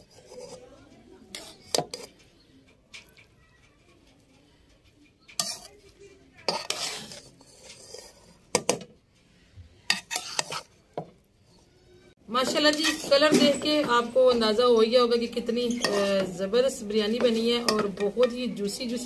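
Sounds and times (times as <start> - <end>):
metal spoon scraping a pot: 0.0 - 11.7, 12.4 - 19.0.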